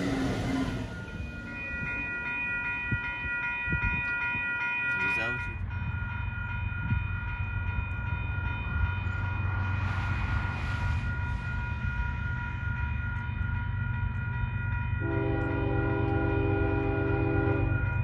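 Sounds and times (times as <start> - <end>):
freight train rumble: 0.0 - 18.0
level-crossing bell ringing: 0.0 - 18.0
train horn chord: 15.0 - 17.8.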